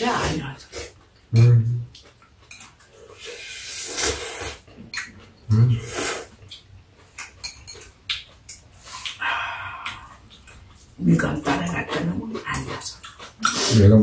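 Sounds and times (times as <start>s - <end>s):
chopsticks clicking against bowls: 1.4s - 2.9s, 6.5s - 9.2s
noodles slurped: 3.0s - 4.6s.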